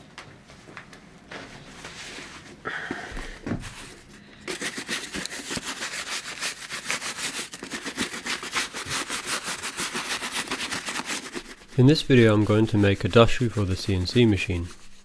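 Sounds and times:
brush scrubbing leather boot: 3.7 - 15.0.

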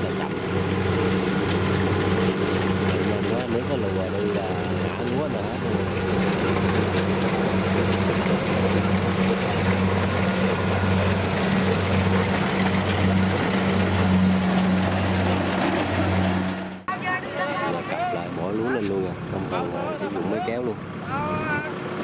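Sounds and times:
threshing machinery rattle: 0.0 - 16.9
combine harvester engine hum: 0.0 - 22.0.

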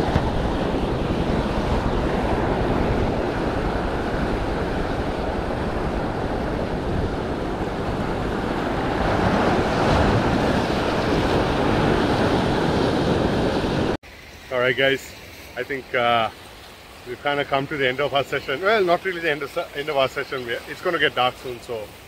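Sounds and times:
wind buffeting microphone: 0.0 - 14.0
surf breaking over rocks: 0.0 - 21.8.

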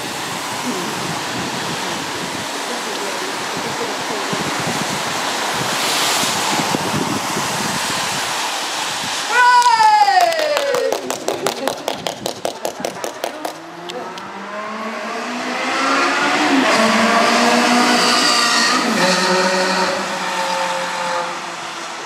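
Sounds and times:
tyres hissing on wet surface: 0.0 - 9.6
race car engines passing: 10.2 - 22.0.

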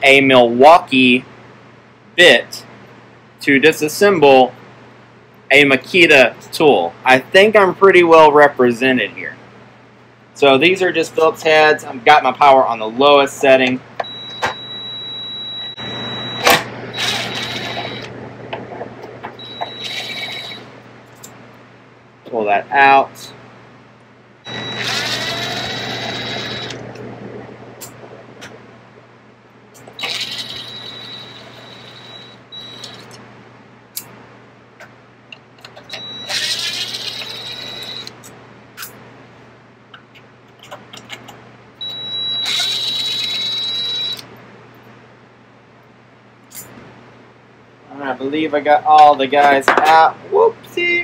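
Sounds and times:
cordless drill whirring: 17.0 - 18.1, 19.5 - 20.6, 24.6 - 26.8, 30.0 - 31.8, 36.3 - 38.1.

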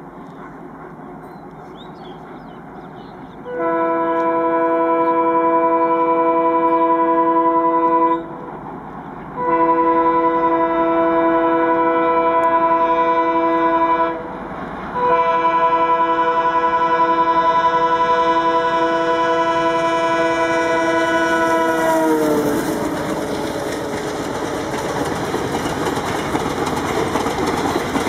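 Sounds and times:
train rumbling at speed: 0.0 - 28.0
locomotive horn blasts: 3.4 - 8.4, 9.4 - 14.3, 14.9 - 24.8.

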